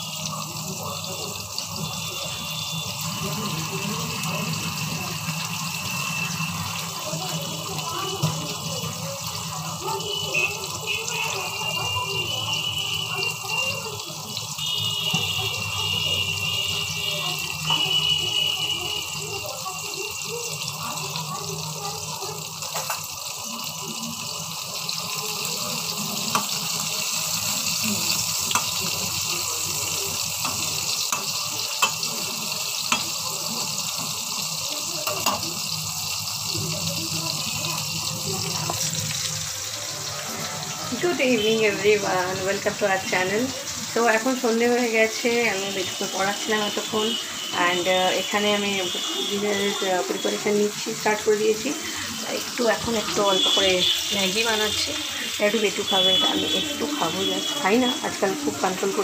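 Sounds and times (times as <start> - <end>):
kitchen hiss: 0.0 - 59.0
utensils clinking on pans: 22.5 - 23.4, 24.8 - 42.0.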